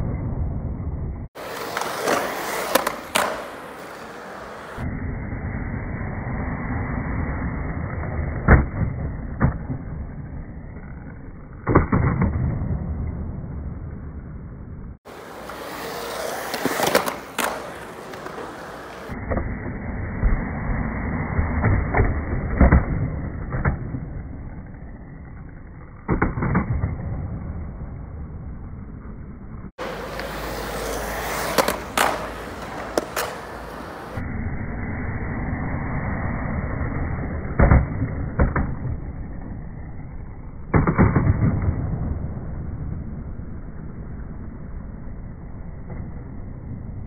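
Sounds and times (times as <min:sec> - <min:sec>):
skateboard wheels rolling on concrete: 0:00.0 - 0:47.0
skateboard clacks: 0:01.4 - 0:04.8, 0:15.1 - 0:19.2, 0:29.8 - 0:34.2.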